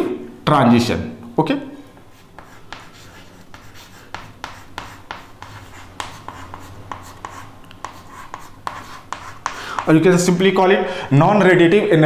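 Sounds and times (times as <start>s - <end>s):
chalk writing on chalkboard: 2.1s - 10.1s.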